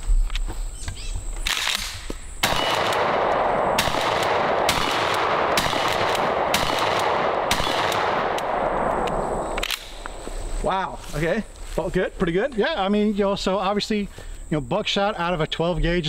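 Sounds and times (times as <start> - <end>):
shotgun shots: 1.5 - 10.0.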